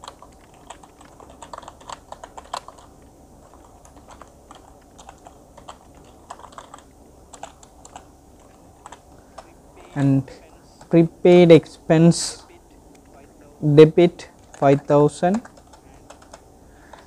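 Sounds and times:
keyboard keys clicking: 0:00.0 - 0:10.0, 0:14.4 - 0:17.0.

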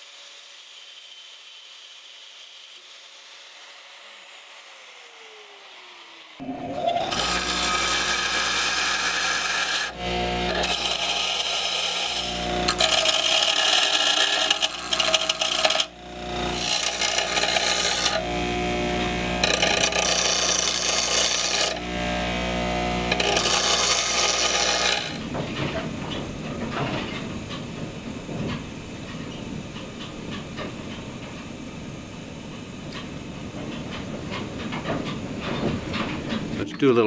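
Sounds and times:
bench grinder motor hum: 0:02.7 - 0:25.4
metal grinding on wheel: 0:06.4 - 0:27.6.

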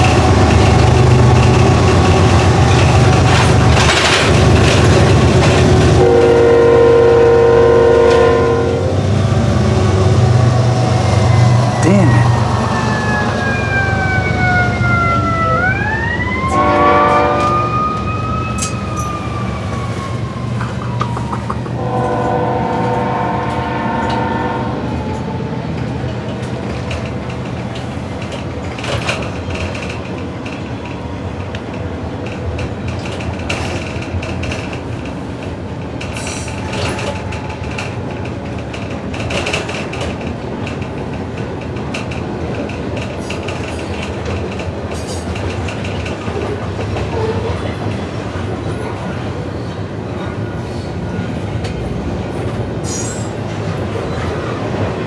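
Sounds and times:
rumble of bus and passing train: 0:00.0 - 0:55.0
locomotive horn blasts: 0:06.0 - 0:09.0, 0:16.5 - 0:17.7, 0:21.8 - 0:24.8
siren wailing: 0:11.8 - 0:22.5.

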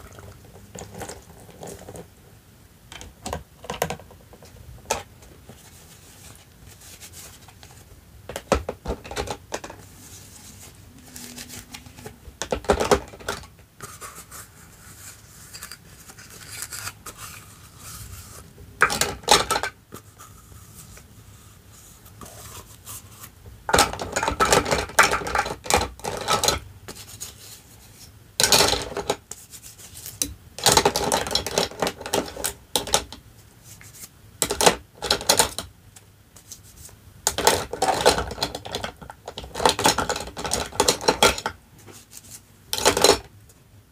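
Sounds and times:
plastic toy pieces clattering: 0:11.2 - 0:13.5, 0:18.8 - 0:19.8, 0:23.7 - 0:26.6, 0:28.4 - 0:29.2, 0:30.6 - 0:33.1, 0:37.3 - 0:41.6, 0:42.7 - 0:43.3.

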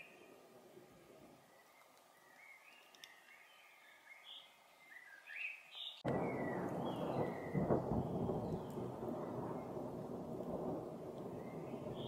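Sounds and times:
faint bird chirps: 0:00.0 - 0:09.8
rain: 0:06.0 - 0:12.0
thunder rumble: 0:06.0 - 0:12.0.

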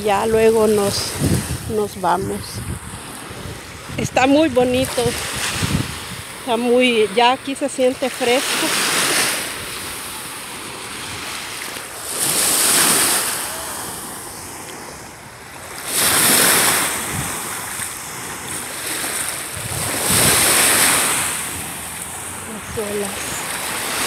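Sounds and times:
waves washing on shore: 0:00.0 - 0:24.0.

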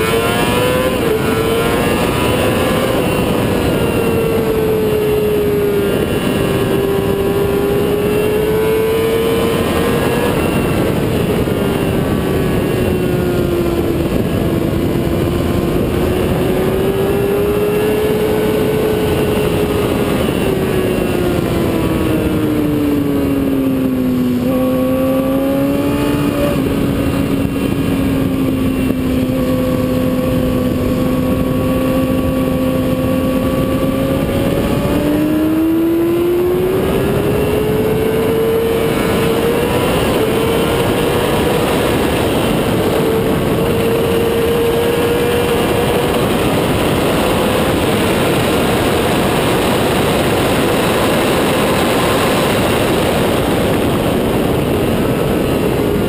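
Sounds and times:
motorcycle engine revving: 0:00.0 - 0:56.0
wind rush: 0:00.0 - 0:56.0.

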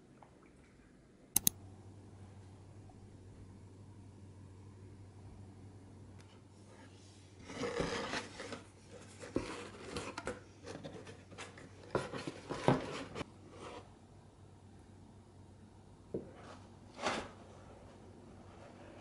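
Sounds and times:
cardboard rustling and scraping: 0:06.7 - 0:13.9, 0:16.3 - 0:19.0.

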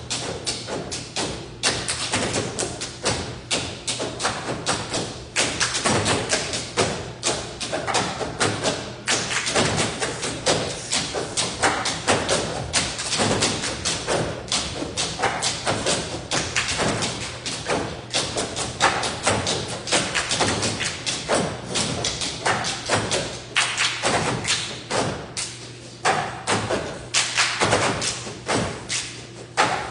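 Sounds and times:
hands slapping a tabletop: 0:07.9 - 0:29.9.

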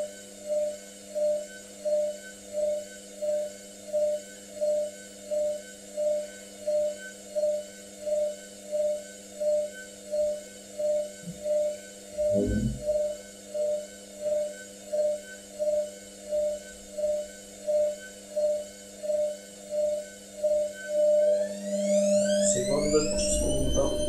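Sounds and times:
low thump: 0:12.4 - 0:12.9.

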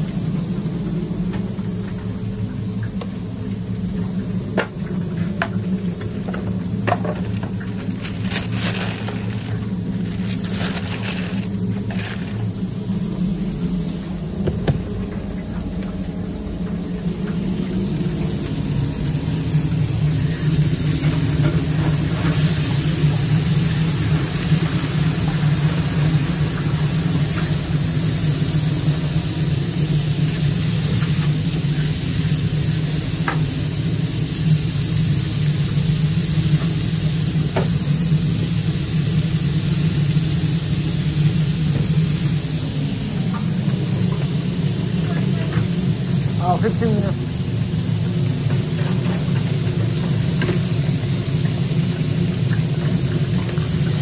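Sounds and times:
kitchen equipment humming: 0:00.0 - 0:54.0
food sizzling on a griddle: 0:17.4 - 0:54.0.

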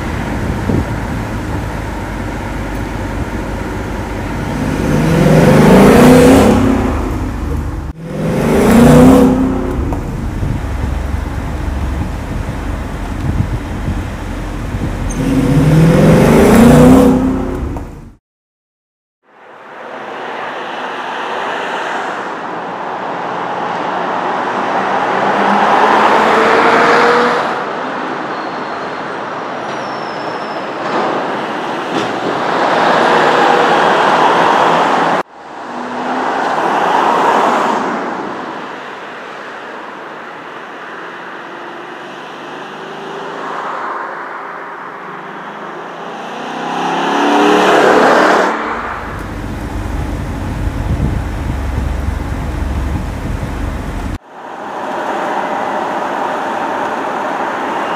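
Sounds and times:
car engine driving by: 0:00.0 - 0:18.2, 0:45.2 - 0:56.9.

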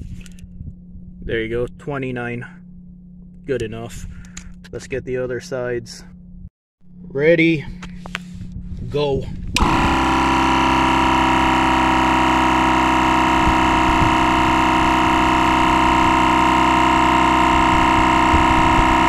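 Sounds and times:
tire inflator compressor running: 0:07.8 - 0:19.0.

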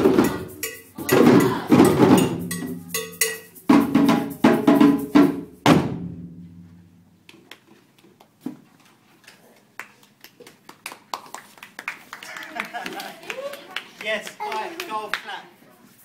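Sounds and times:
djembes struck together: 0:00.0 - 0:02.8.

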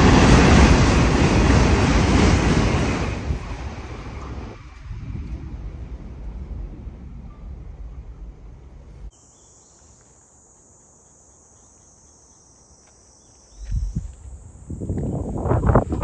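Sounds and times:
wind gust buffeting microphone: 0:00.0 - 0:09.1, 0:13.6 - 0:16.0
wind rumble: 0:00.0 - 0:09.1, 0:13.6 - 0:16.0
insects chirring: 0:03.5 - 0:16.0.

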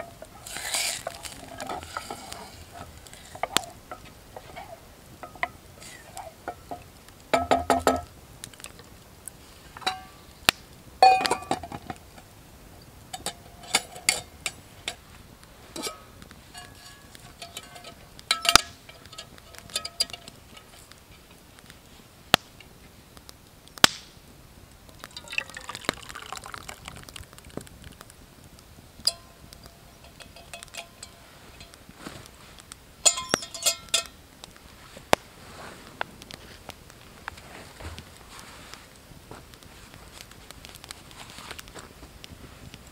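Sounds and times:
metal pots clinking: 0:00.0 - 0:08.1, 0:09.8 - 0:10.2, 0:11.0 - 0:11.9, 0:13.1 - 0:15.0, 0:15.7 - 0:20.8, 0:25.0 - 0:27.0, 0:29.0 - 0:31.8, 0:33.0 - 0:34.2
thick soup pouring: 0:00.2 - 0:04.8, 0:24.9 - 0:28.0.

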